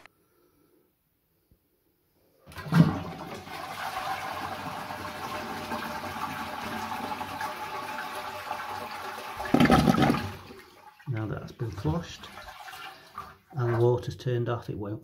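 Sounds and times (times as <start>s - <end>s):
toilet flushing: 2.4s - 14.2s.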